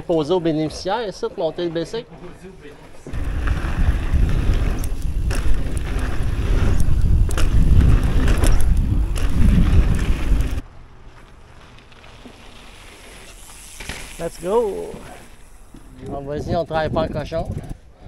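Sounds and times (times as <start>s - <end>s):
bike knocks and rattles: 3.1s - 10.6s, 11.2s - 16.0s
wind buffeting microphone: 3.1s - 10.6s, 15.7s - 18.0s
faint hiss: 12.4s - 16.0s.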